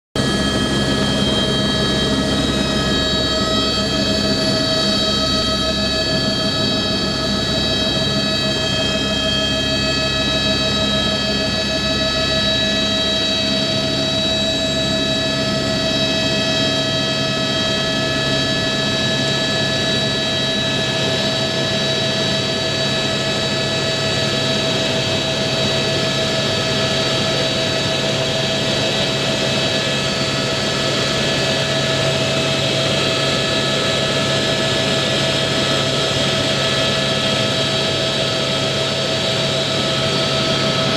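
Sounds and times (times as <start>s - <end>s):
helicopter engine and rotor drone: 0.2s - 40.9s
high turbine whine: 0.2s - 40.9s.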